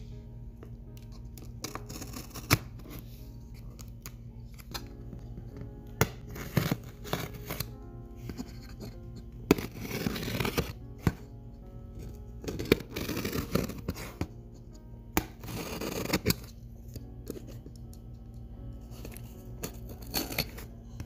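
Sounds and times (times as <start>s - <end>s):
soft background music: 0.0s - 21.0s
blade scraping through box tape: 1.6s - 3.0s, 6.3s - 7.7s, 9.5s - 10.8s, 12.4s - 14.3s, 15.2s - 16.5s, 19.6s - 20.6s.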